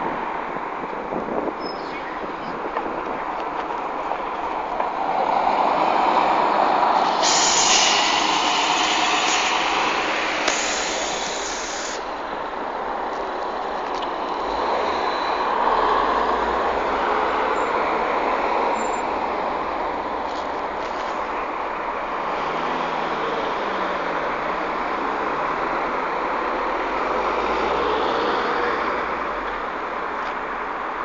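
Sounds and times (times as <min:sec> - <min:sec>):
bus engine and road noise: 0:00.0 - 0:31.0
loud hiss: 0:06.9 - 0:12.3.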